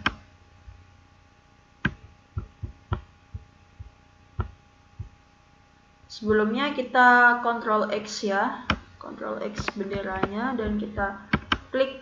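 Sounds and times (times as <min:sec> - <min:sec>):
faint steady hum: 0:00.0 - 0:12.0
mouse and keyboard clicks: 0:09.6 - 0:11.7.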